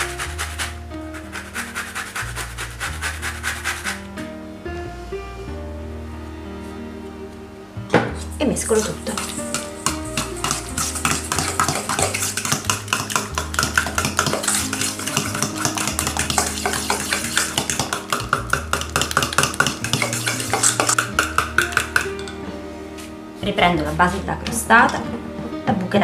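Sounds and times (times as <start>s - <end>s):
metal spoon stirring in steel bowl: 8.7s - 22.4s.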